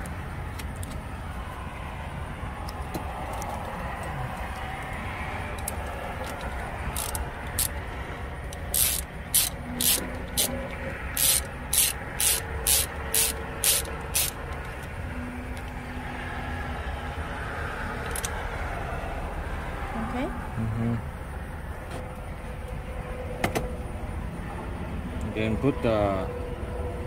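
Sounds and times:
socket ratchet clicking: 0:05.6 - 0:07.9, 0:08.5 - 0:14.9, 0:18.1 - 0:18.4.

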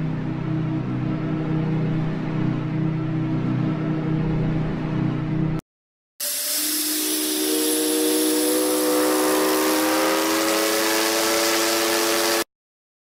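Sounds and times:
steam hiss: 0:06.2 - 0:12.4
ship's steam whistle blast: 0:06.2 - 0:12.5.

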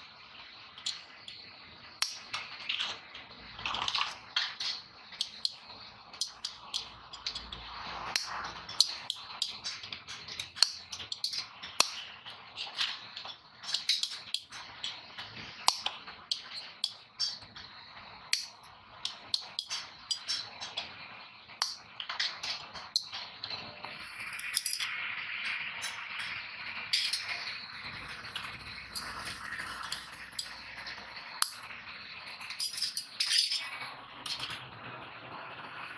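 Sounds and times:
tin snips cutting metal plates: 0:02.0 - 0:02.2, 0:04.6 - 0:07.5, 0:08.1 - 0:12.1, 0:12.7 - 0:14.5, 0:15.6 - 0:17.4.

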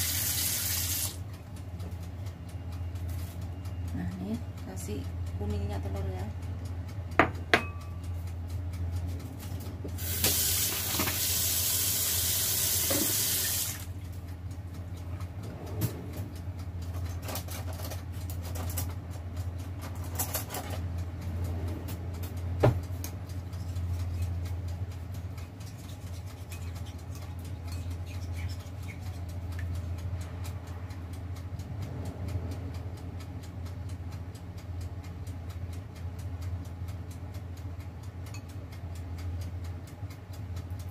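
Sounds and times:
steady low hum: 0:00.0 - 0:10.6, 0:11.6 - 0:40.9
tap running into sink: 0:12.6 - 0:13.7.

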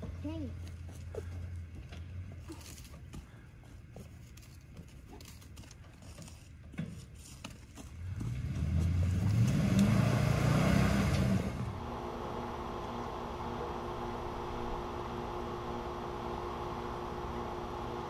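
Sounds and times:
vehicle engine revving hard: 0:08.0 - 0:11.9.

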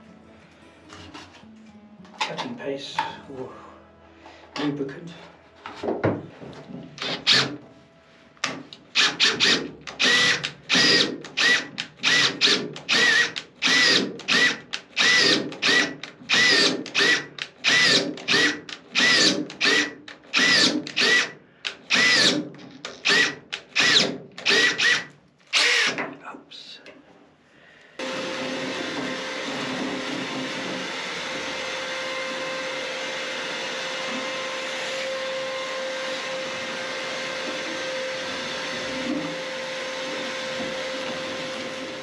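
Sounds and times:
cordless drill boring into steel: 0:09.0 - 0:22.4, 0:23.0 - 0:26.0.

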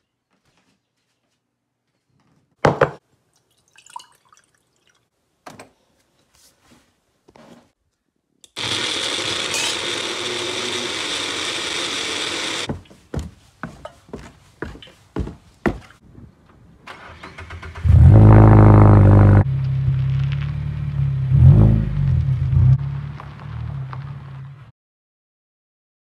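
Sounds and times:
blender running: 0:08.6 - 0:12.7.

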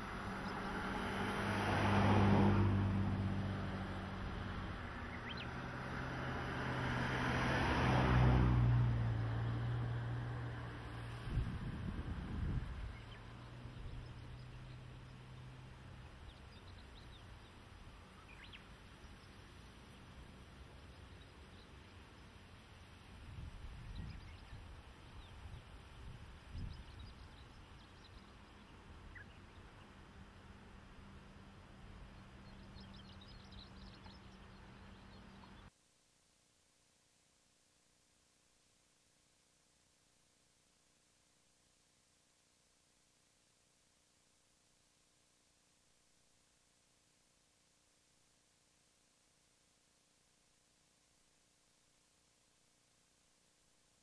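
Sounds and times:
wind rumble on microphone: 0:08.5 - 0:14.8, 0:23.1 - 0:29.6.

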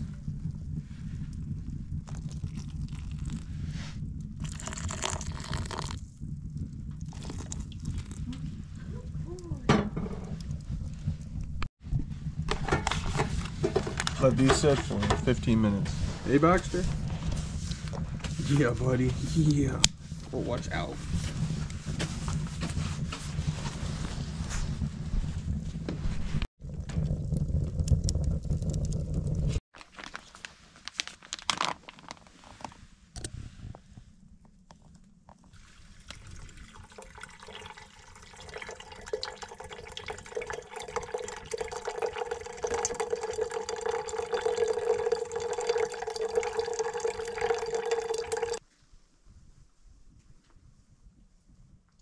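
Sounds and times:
liquid pouring into a mug: 0:02.1 - 0:03.4, 0:04.4 - 0:06.0, 0:07.0 - 0:08.2, 0:35.6 - 0:48.6.

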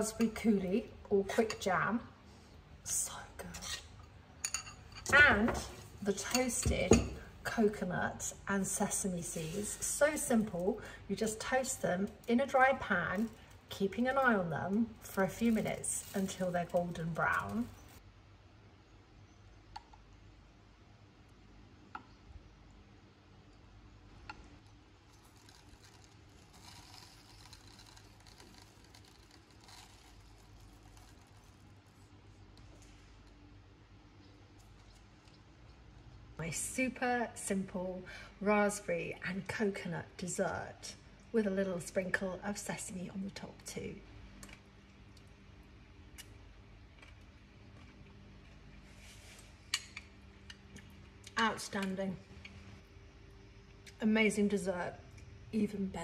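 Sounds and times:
faint steady hum: 0:00.0 - 0:56.0
seeds pattering on wood and glass: 0:09.4 - 0:18.0, 0:25.1 - 0:33.1
faint clicks and mouth sounds: 0:34.2 - 0:36.3, 0:46.0 - 0:48.8.

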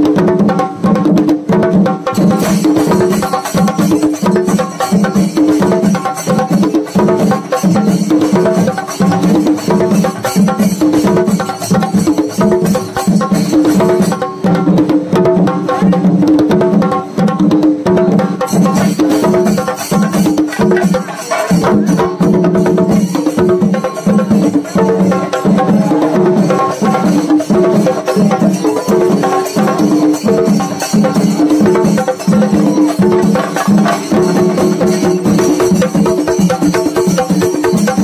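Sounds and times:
drums beaten fast: 0:00.0 - 0:38.0
cymbals clashing: 0:18.2 - 0:38.0.

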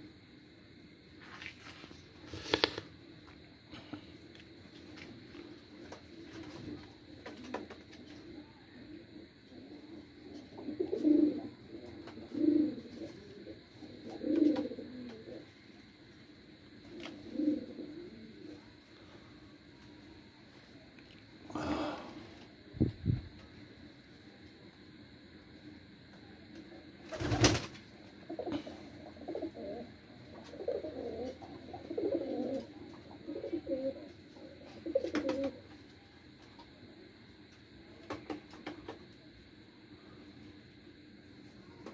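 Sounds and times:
pigeons cooing: 0:05.6 - 0:15.7, 0:16.7 - 0:19.1, 0:27.1 - 0:35.8.

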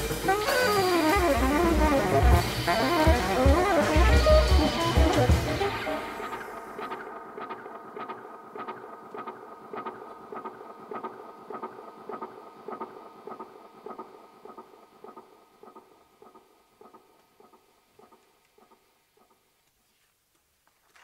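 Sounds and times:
band music: 0:00.0 - 0:08.9.

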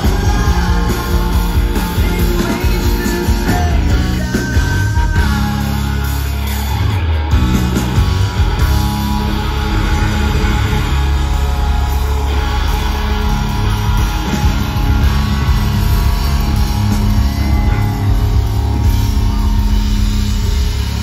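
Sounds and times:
drum kit: 0:00.0 - 0:21.0
electric guitar: 0:00.0 - 0:21.0
live rock band playing: 0:00.0 - 0:21.0.

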